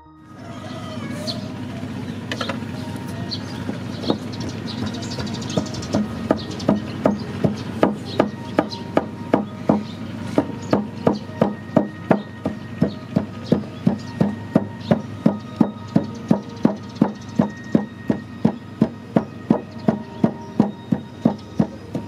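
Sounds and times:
wooden pestle pounding in mortar: 0:05.6 - 0:22.0.

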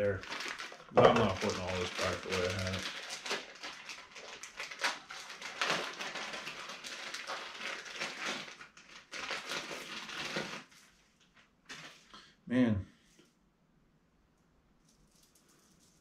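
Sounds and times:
packaging rustling and clattering: 0:00.0 - 0:12.1.

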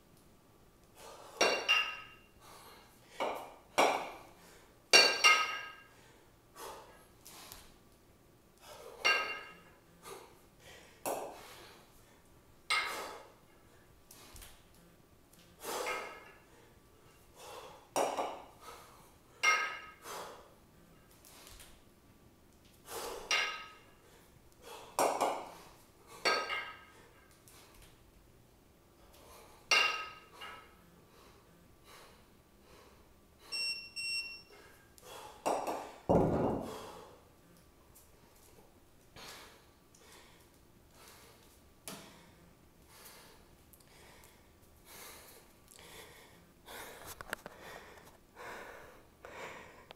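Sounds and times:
kettlebells clinking together: 0:01.4 - 0:02.3, 0:04.9 - 0:05.9, 0:09.0 - 0:09.7, 0:12.7 - 0:13.1, 0:15.8 - 0:16.4, 0:19.4 - 0:20.0, 0:23.2 - 0:23.9, 0:26.2 - 0:27.0, 0:29.7 - 0:30.7
person breathing: 0:02.4 - 0:03.4, 0:04.2 - 0:04.8, 0:05.9 - 0:07.7, 0:09.9 - 0:14.5, 0:15.6 - 0:17.9, 0:18.5 - 0:20.6, 0:22.8 - 0:27.8, 0:30.3 - 0:33.6, 0:34.5 - 0:37.3, 0:39.2 - 0:49.9
heavy thud on floor: 0:36.1 - 0:36.8.

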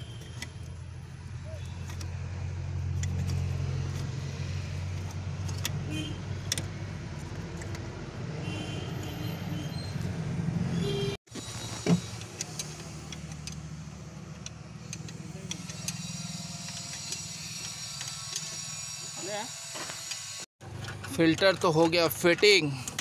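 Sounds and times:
spanner metal clicks: 0:04.9 - 0:05.8, 0:06.4 - 0:07.9, 0:12.2 - 0:18.7.

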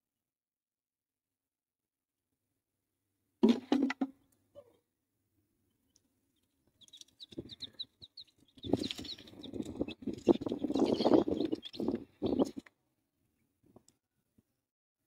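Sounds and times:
chicks peeping: 0:05.9 - 0:12.7
rustling and scratching in a box: 0:06.7 - 0:12.6.

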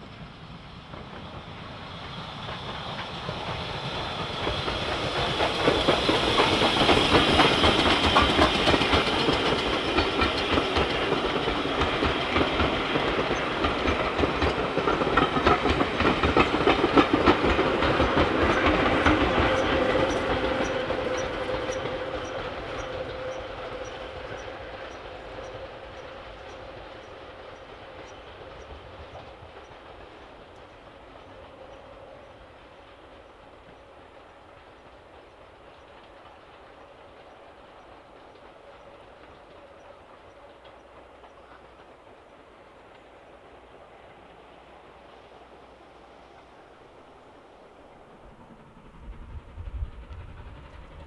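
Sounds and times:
steam locomotive passing: 0:00.0 - 0:51.0.

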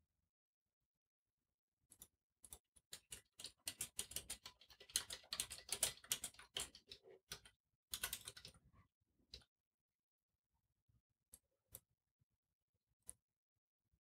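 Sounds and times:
keyboard typing: 0:02.5 - 0:08.6.

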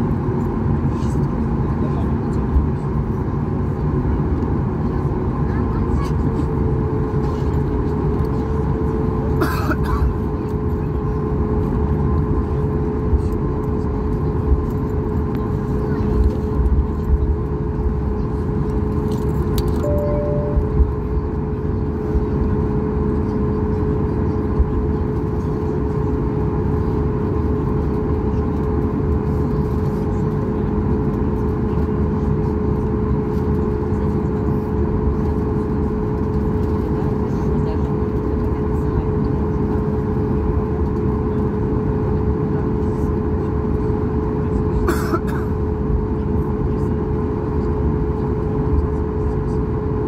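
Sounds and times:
aircraft cabin low rumble: 0:00.0 - 0:50.0
jet engine whine: 0:00.0 - 0:50.0
brief higher tone: 0:19.8 - 0:21.0.

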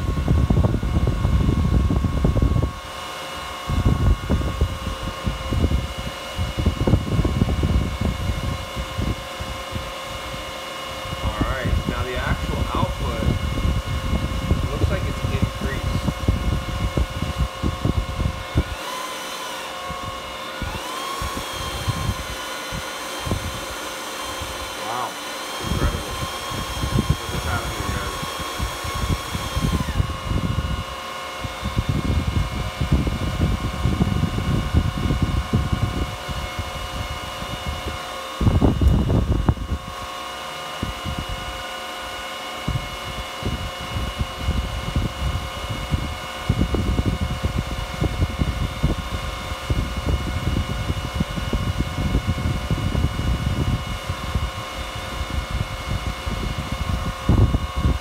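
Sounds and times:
cooling fans whining: 0:00.0 - 0:58.0
air buffeting microphone: 0:11.2 - 0:18.8.

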